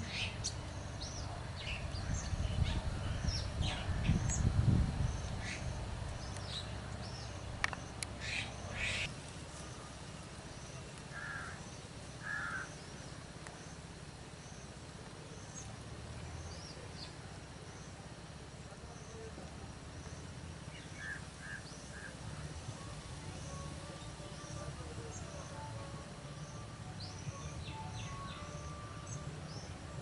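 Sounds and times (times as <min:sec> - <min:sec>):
harsh raspy bird calls: 0:11.1 - 0:11.6, 0:12.2 - 0:12.8.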